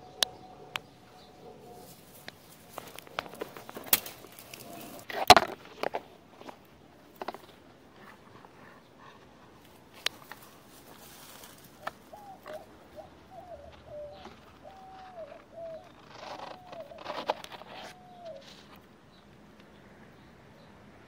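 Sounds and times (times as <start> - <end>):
dove cooing: 0.0 - 5.1, 8.0 - 18.8
leaves and twigs rustling: 0.1 - 19.0.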